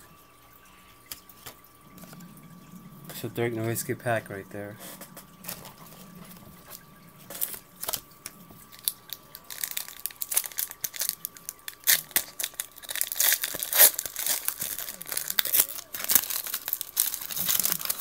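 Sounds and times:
wrapper being torn and crinkled: 7.3s - 18.0s.

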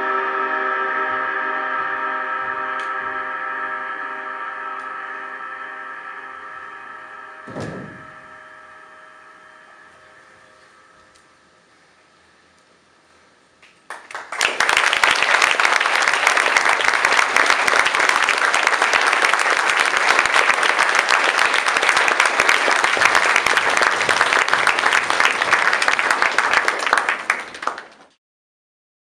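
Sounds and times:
audience applauding: 13.6s - 28.2s.

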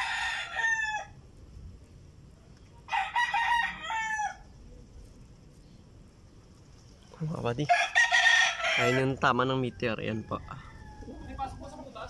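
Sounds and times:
rooster crowing: 0.0s - 1.2s, 2.8s - 4.5s, 7.6s - 12.0s.

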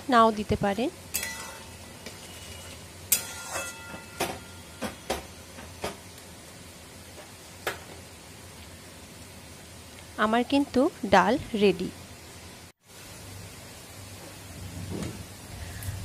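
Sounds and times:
steady low hiss: 0.0s - 16.0s
metal ladle knocking a pan: 1.1s - 6.0s.

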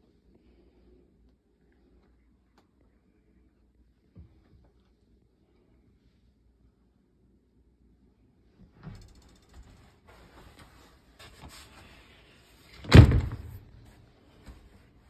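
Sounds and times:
cabinet door banging shut: 12.8s - 13.6s
cabinet door clicks and rattles: 12.8s - 13.6s.

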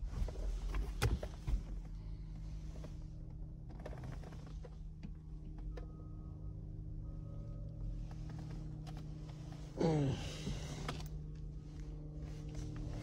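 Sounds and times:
low steady hum: 0.0s - 13.0s
hands rustling over car interior: 8.0s - 13.0s.

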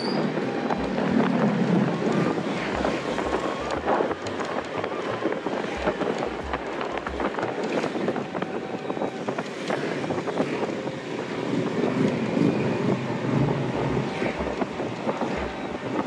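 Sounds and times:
scooter engine running: 0.0s - 9.2s
road noise: 0.0s - 16.0s
wind buffeting microphone: 0.0s - 16.0s.

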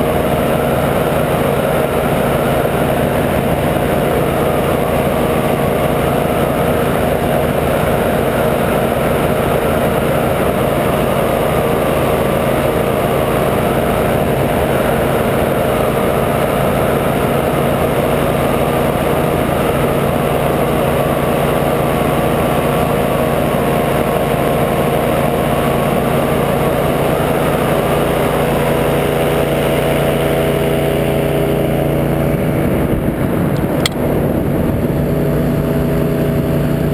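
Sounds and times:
paramotor engine drone: 0.0s - 36.9s
sharp click: 33.6s - 34.0s.

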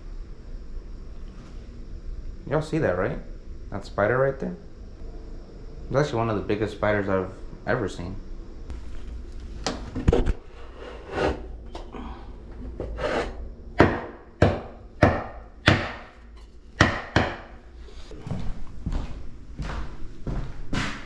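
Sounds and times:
knocks and thuds on wood: 13.8s - 16.1s, 16.8s - 17.5s.

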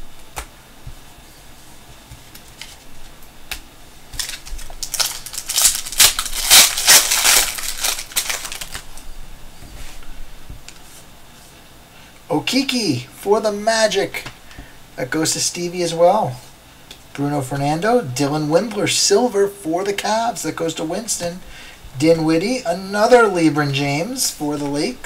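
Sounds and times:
foil wrapper crinkling and tearing: 4.1s - 9.0s.

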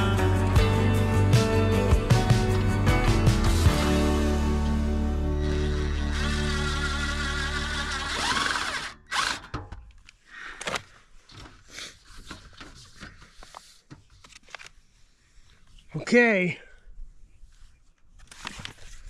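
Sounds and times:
background music: 0.0s - 8.9s
cordless drill driving screws into metal: 5.4s - 9.9s
clicks and handling noise: 9.2s - 14.9s, 17.8s - 19.0s.

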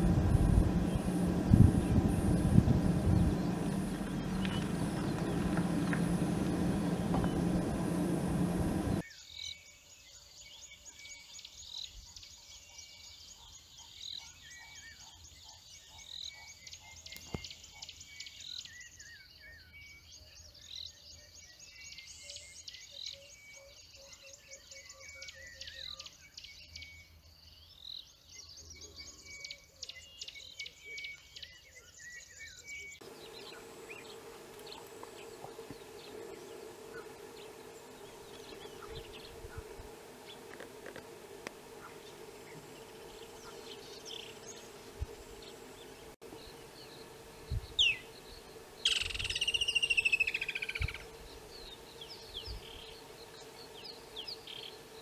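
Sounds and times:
birds chattering and chirping: 0.0s - 9.0s, 31.9s - 55.0s
low engine-like rumble: 0.0s - 9.0s, 33.0s - 55.0s
steady low hum: 0.0s - 9.0s, 33.0s - 55.0s.

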